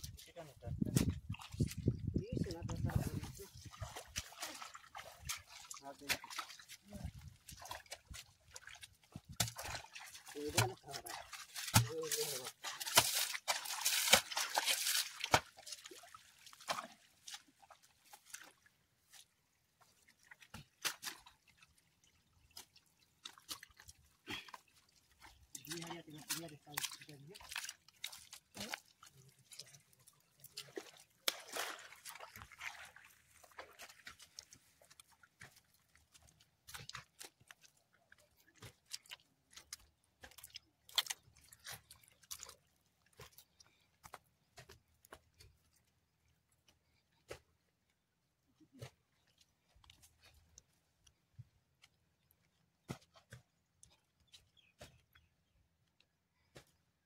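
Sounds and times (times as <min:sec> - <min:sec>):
wet mud splats: 0:00.0 - 0:19.3, 0:20.1 - 0:21.8, 0:22.4 - 0:29.8, 0:30.4 - 0:45.8, 0:48.6 - 0:55.2
footsteps on muddy soil: 0:00.0 - 0:21.4, 0:30.4 - 0:46.0, 0:48.6 - 0:55.4
water dripping into puddle: 0:03.6 - 0:19.2, 0:20.0 - 0:47.5.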